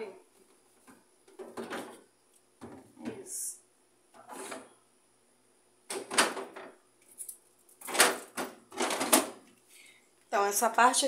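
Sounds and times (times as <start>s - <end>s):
plastic bottles clattering: 1.3s - 2.0s, 7.8s - 9.4s.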